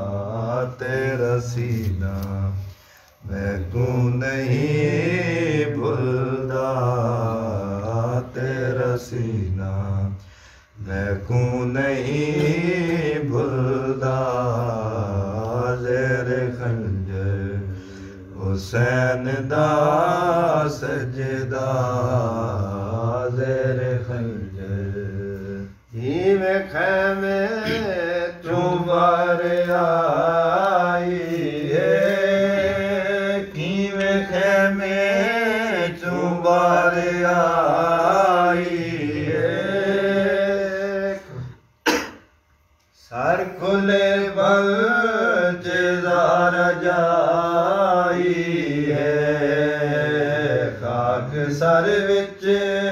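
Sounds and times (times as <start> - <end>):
man chanting a lament: 0.0 - 10.2.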